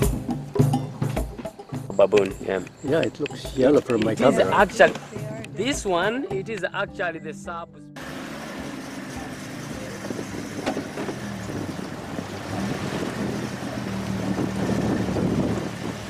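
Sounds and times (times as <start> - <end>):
grass and water rushing against vehicle: 8.0 - 16.0
vehicle engine running: 8.0 - 16.0.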